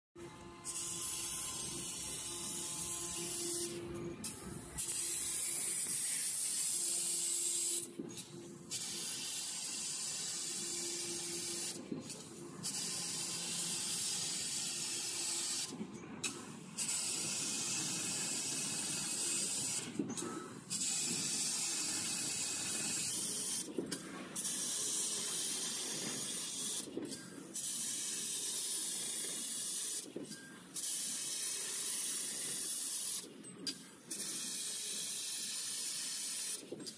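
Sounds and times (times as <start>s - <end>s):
laser cutter gas hiss: 0.6s - 30.1s, 30.8s - 36.7s.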